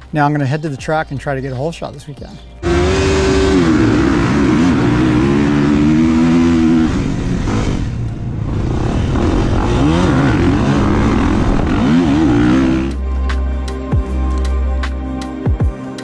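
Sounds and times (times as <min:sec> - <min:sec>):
dirt bike engine revving: 0:02.6 - 0:13.0.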